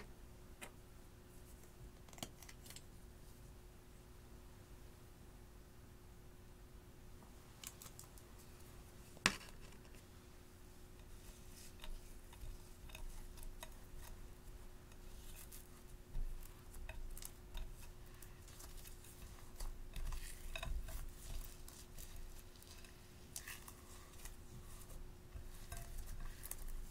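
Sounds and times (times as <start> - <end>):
slime squishing and crackling: 11.1 - 26.9.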